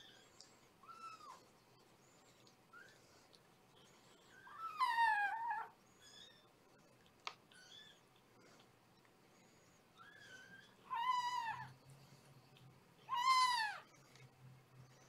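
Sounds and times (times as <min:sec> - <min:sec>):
faint high squeaks: 0:04.4 - 0:06.5
kittens meowing: 0:04.4 - 0:06.5, 0:10.0 - 0:11.8, 0:13.0 - 0:13.9.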